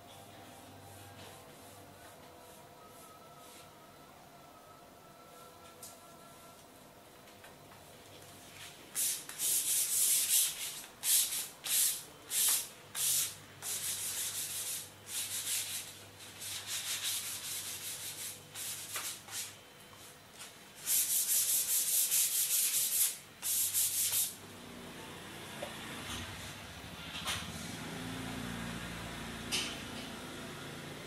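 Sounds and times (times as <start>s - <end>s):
sandpaper rubbing wood: 9.0s - 19.5s, 20.8s - 24.4s.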